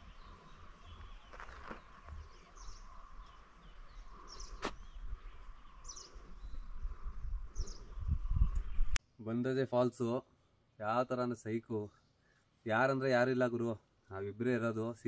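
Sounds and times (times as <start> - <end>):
bird chirping: 0.0 - 9.0.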